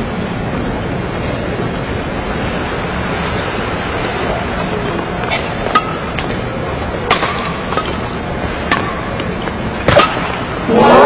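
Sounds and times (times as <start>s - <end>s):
hall background noise: 0.0s - 11.0s
racket hitting shuttlecock: 4.8s - 6.4s, 7.0s - 10.7s.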